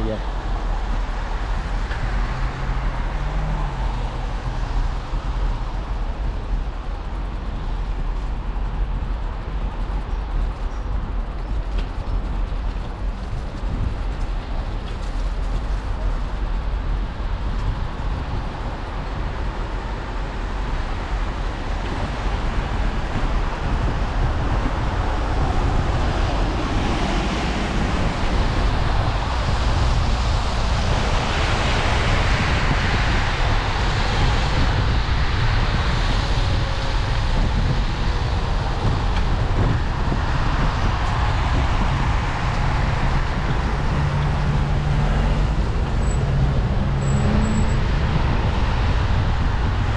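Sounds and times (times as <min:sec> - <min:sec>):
wind rumbling on microphone: 0:00.0 - 0:49.9.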